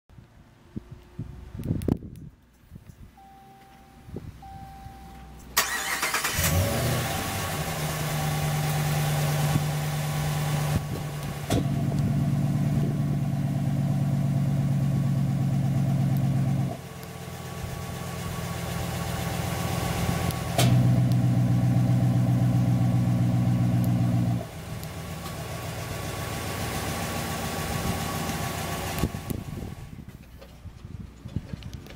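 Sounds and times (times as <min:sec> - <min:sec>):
truck engine cranking and idling: 0:01.5 - 0:31.9
loud open exhaust idle: 0:05.6 - 0:30.0.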